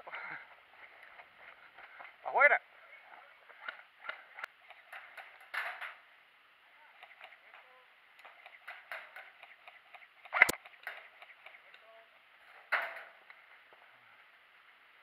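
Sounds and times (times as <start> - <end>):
rustles of movement and gear: 0.0 - 6.1.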